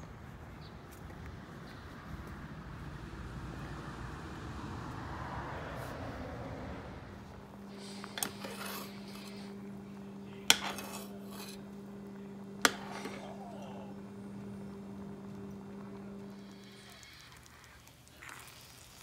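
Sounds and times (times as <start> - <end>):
outdoor noise: 0.0 - 19.0
steady low hum: 6.1 - 17.9
metal spoon scraping a pot: 7.7 - 9.8, 10.5 - 11.7, 12.6 - 13.4.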